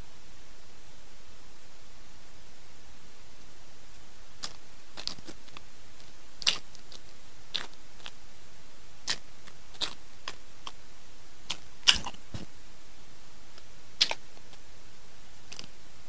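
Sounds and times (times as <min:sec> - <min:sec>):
wet chewing mouth clicks: 0:04.4 - 0:08.2, 0:09.0 - 0:09.2, 0:09.8 - 0:10.8, 0:11.5 - 0:12.2, 0:14.0 - 0:14.5.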